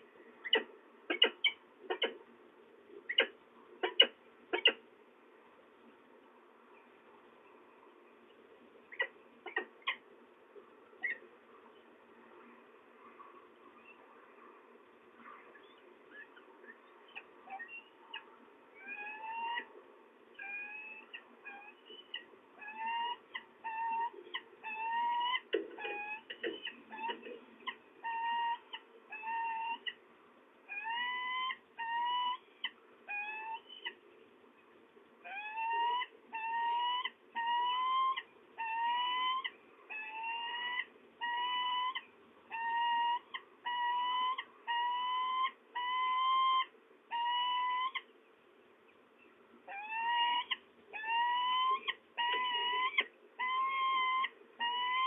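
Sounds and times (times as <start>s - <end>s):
falcon calling: 35.3s - 48.1s, 49.7s - 55.0s.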